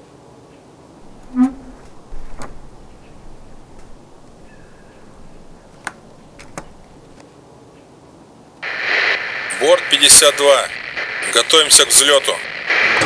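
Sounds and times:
faint steady hiss: 1.0s - 7.2s, 8.6s - 13.0s
sharp clicks: 1.8s - 7.2s.

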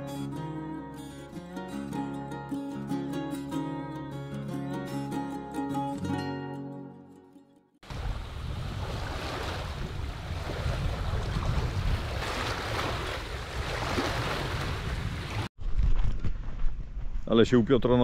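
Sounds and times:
guitar tune: 0.0s - 7.8s
waves washing in: 7.8s - 15.5s
wind buffeting microphone: 7.9s - 17.3s.

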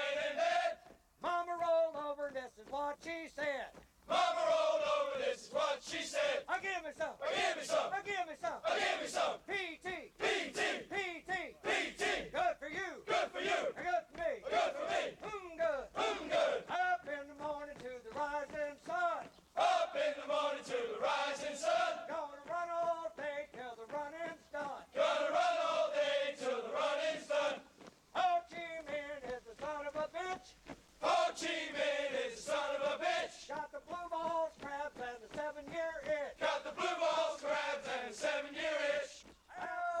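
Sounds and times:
man calling cadence: 6.5s - 14.6s, 15.2s - 19.3s.

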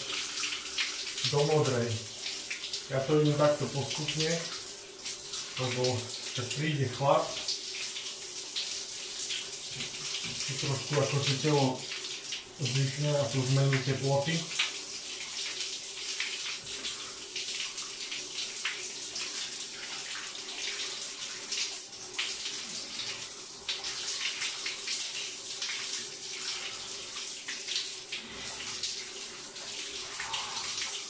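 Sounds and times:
water splashing in shower tray: 0.0s - 31.0s
shower spray hissing: 22.4s - 31.0s.

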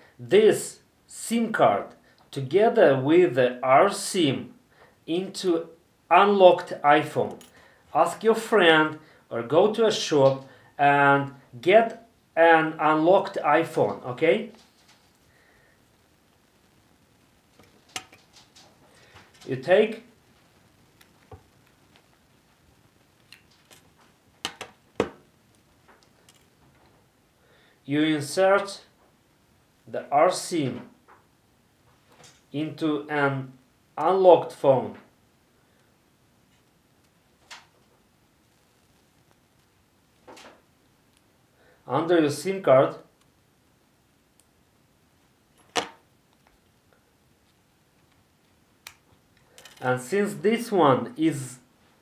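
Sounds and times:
faint handling sounds: 13.8s - 27.1s.

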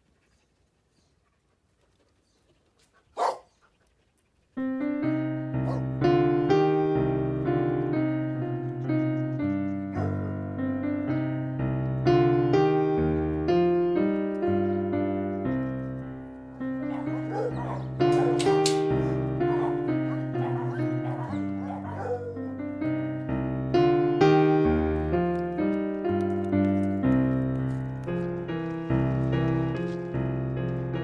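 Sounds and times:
dog bark: 3.2s - 3.6s, 5.6s - 5.9s, 9.9s - 10.3s, 16.9s - 22.4s
piano playing slow chords: 4.6s - 31.0s.

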